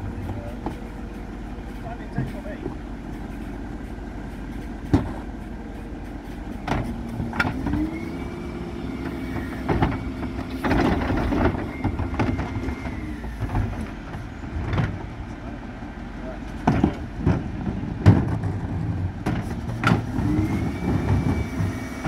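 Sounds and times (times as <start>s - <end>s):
hydraulic bin lift whine: 0.0s - 15.7s, 18.5s - 22.0s
truck engine running: 0.0s - 22.0s
bins knocking: 16.6s - 18.7s.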